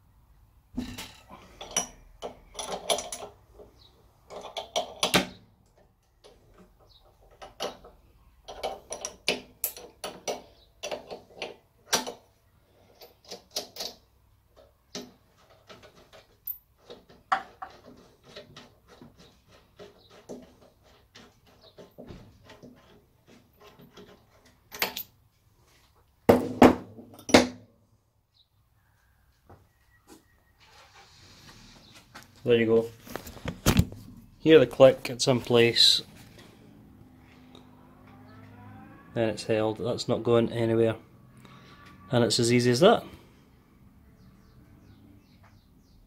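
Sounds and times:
spanner metal clicks and clanks: 8.5s - 12.2s.

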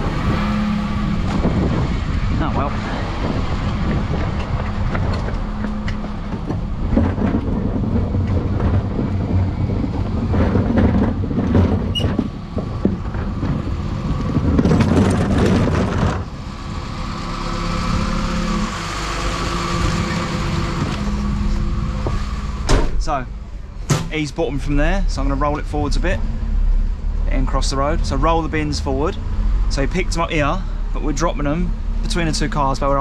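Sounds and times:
diesel engine running: 0.0s - 33.0s
wheelie bin rolling over tarmac: 2.8s - 18.2s.

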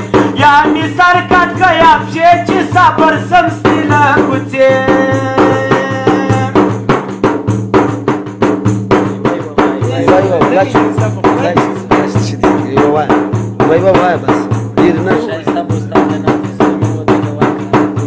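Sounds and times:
man singing: 0.0s - 6.9s, 9.2s - 13.2s, 14.7s - 18.0s
frame drum struck by hand: 0.0s - 18.0s.

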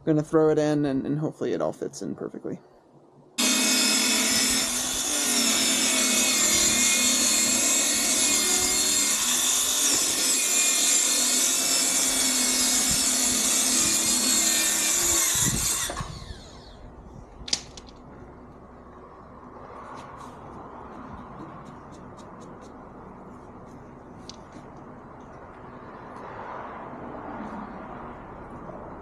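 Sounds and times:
circular saw cutting wood: 3.4s - 16.9s.

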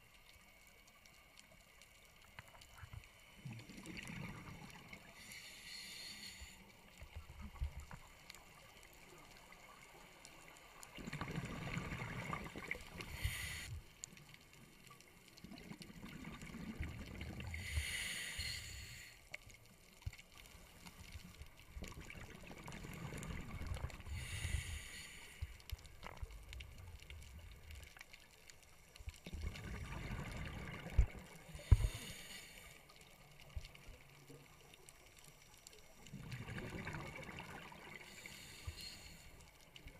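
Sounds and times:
regulator inhalation hiss: 5.2s - 6.8s, 13.0s - 13.8s, 17.5s - 19.2s, 24.1s - 25.6s, 31.5s - 32.8s, 38.1s - 39.4s
diver exhaling bubbles underwater: 11.0s - 12.8s, 36.1s - 38.0s.

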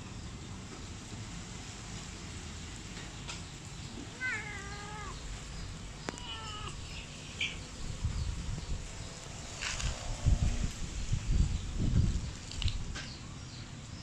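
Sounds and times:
cat meowing: 4.1s - 5.2s, 6.0s - 7.0s.

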